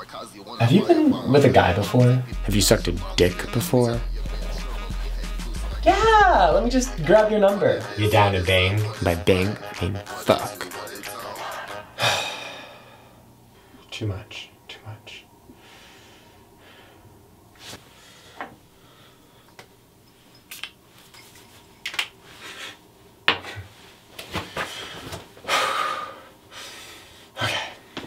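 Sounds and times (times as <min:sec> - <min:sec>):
person breathing: 0:11.3 - 0:13.8, 0:15.6 - 0:19.6, 0:24.5 - 0:28.0.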